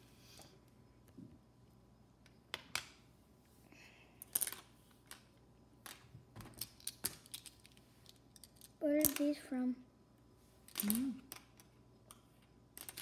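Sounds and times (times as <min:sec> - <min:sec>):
plastic pieces clicking: 0:04.2 - 0:09.3, 0:10.6 - 0:13.0.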